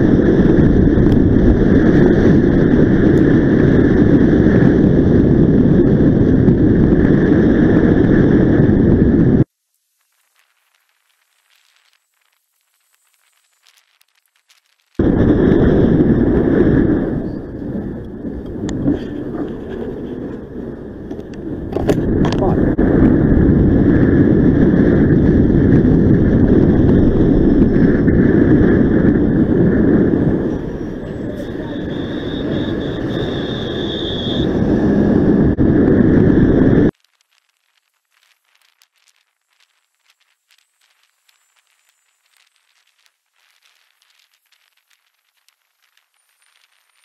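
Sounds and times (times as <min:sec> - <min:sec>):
wind and road rush on microphone: 0:00.0 - 0:09.5, 0:15.0 - 0:37.0
high steady whine: 0:00.0 - 0:47.0
traffic noise: 0:15.0 - 0:22.9, 0:27.0 - 0:36.9.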